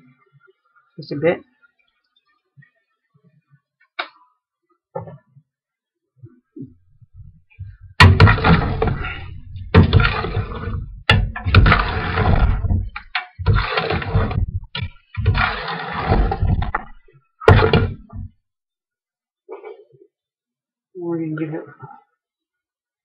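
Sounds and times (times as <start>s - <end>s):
spoon stirring and scraping pot: 7.1s - 18.3s.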